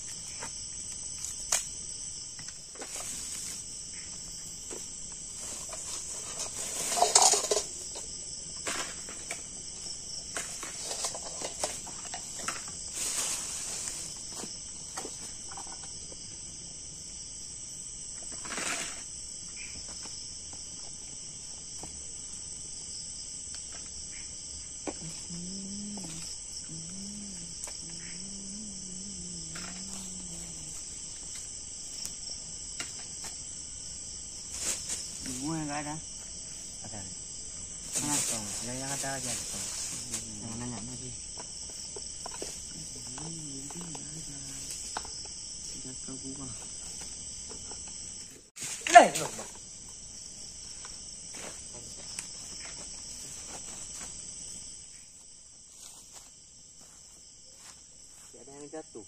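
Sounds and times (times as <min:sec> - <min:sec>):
crickets and night insects: 0:00.0 - 0:59.0.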